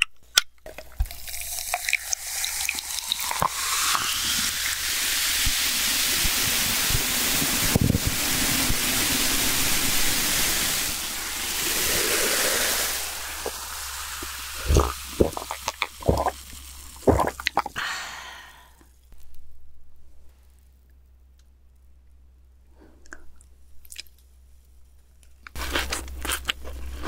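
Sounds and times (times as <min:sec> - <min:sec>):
cola fizzing: 0:00.7 - 0:18.6
liquid pouring into glass: 0:01.0 - 0:04.2, 0:11.0 - 0:17.8
person gulping drink: 0:02.7 - 0:04.5, 0:11.2 - 0:18.7.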